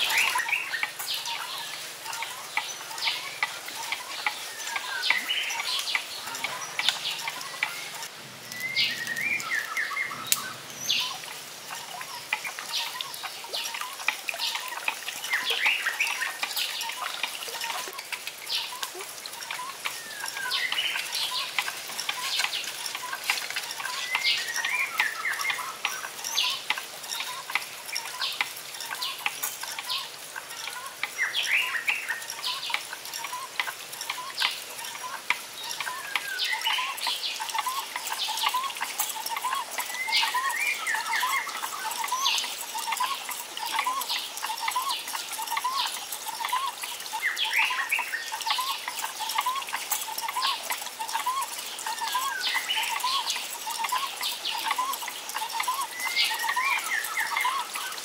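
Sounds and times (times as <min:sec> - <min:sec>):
birds chirping and calling: 0:00.0 - 0:58.0.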